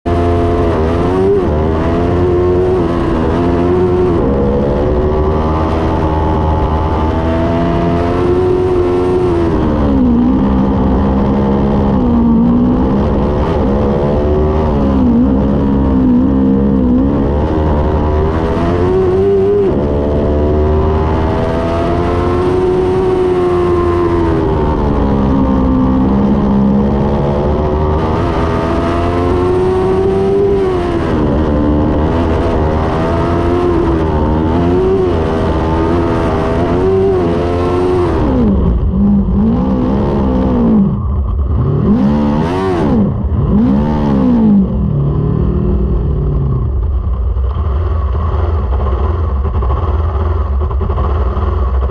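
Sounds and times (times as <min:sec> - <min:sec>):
race car engine revving: 0:00.0 - 0:51.9.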